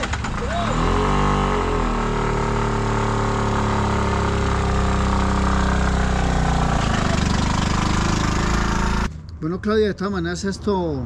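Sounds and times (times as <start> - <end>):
small three-wheeler engine running: 0.0 - 9.1
vehicle moving on gravel: 0.6 - 9.1.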